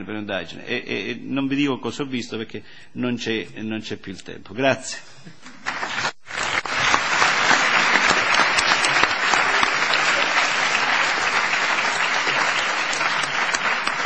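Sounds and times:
audience applauding: 5.6 - 14.0.

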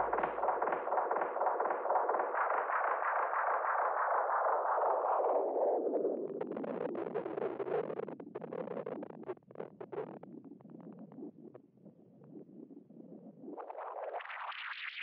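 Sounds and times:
crackling and clicking noise: 0.0 - 3.3.

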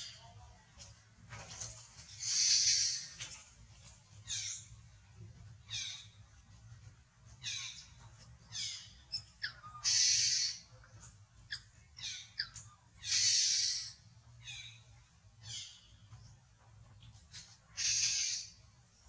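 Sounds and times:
baby monkey harsh screams: 9.8 - 10.6, 13.0 - 14.0.

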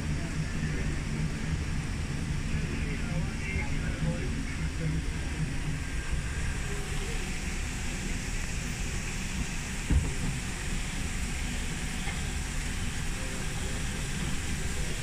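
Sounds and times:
tram rumbling: 0.0 - 15.0
knock: 9.9 - 10.3.

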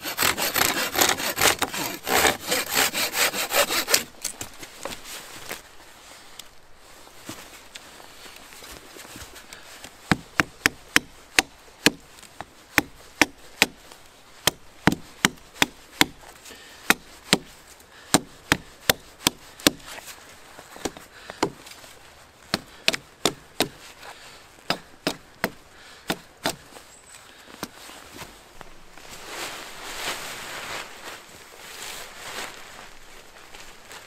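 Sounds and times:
hatchet chopping wood: 0.0 - 4.1, 10.1 - 12.1, 12.7 - 13.8, 14.4 - 16.2, 16.8 - 19.9, 20.8 - 21.7, 22.5 - 23.8, 24.6 - 26.7.

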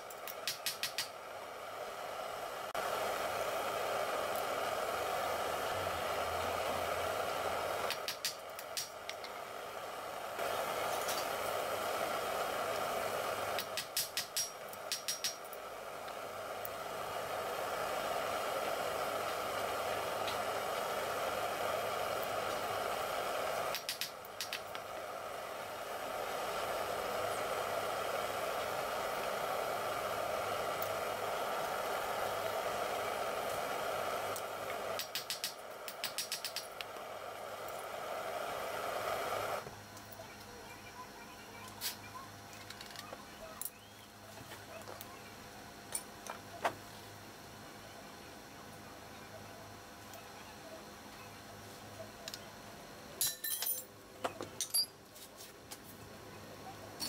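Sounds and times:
steady rushing hiss: 0.0 - 39.6.

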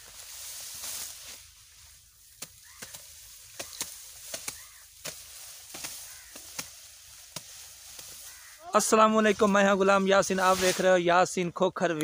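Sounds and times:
faint rustling hiss: 0.0 - 11.2
blade chopping grass stalks: 2.2 - 8.5.

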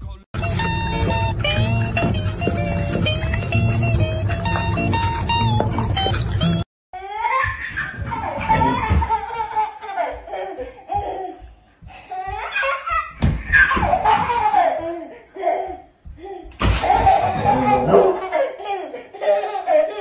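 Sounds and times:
toddler laughing: 7.0 - 11.5, 12.1 - 20.0.

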